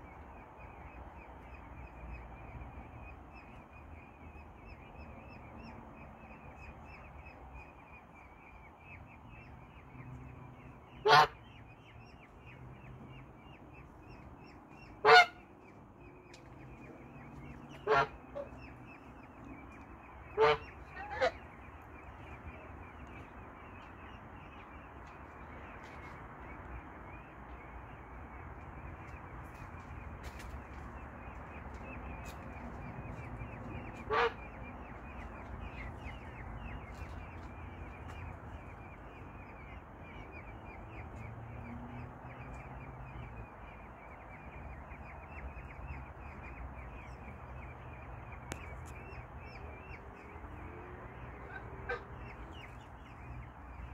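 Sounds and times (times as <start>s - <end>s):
peafowl honking calls: 10.6s - 11.9s, 14.1s - 26.2s, 31.4s - 53.9s.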